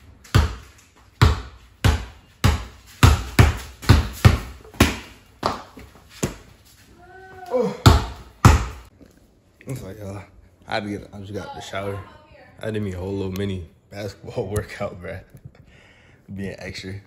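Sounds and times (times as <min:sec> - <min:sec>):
basketball bouncing on concrete: 0:00.0 - 0:06.5, 0:07.8 - 0:08.9.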